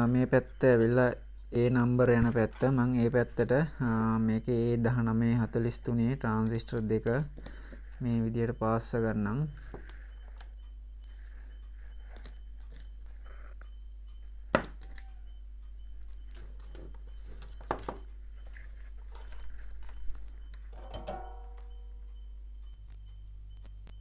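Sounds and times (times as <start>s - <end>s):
steady low hum: 0.0s - 24.0s
clicks and knocks of handling parts: 16.1s - 21.8s
ringing clatter: 20.8s - 21.9s.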